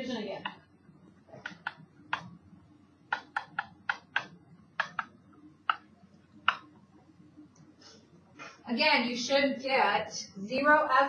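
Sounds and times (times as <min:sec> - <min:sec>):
stylus tapping on touch screen: 0:01.4 - 0:02.4, 0:03.1 - 0:06.8.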